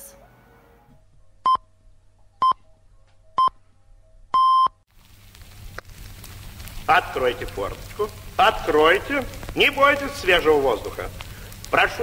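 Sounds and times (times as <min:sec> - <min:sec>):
electronic countdown beeps: 0:01.4 - 0:01.6, 0:03.4 - 0:03.6, 0:04.3 - 0:04.8
crackling hiss: 0:04.9 - 0:12.0.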